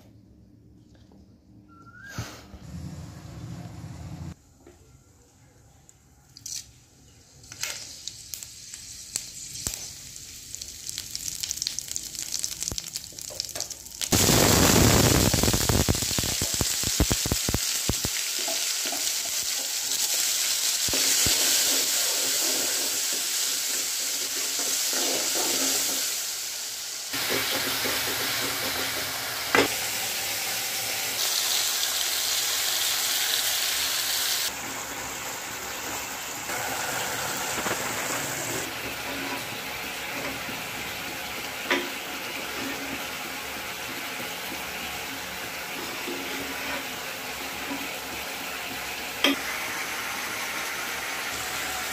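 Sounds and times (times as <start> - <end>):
food sizzling in hot oil: 7.5 - 51.9.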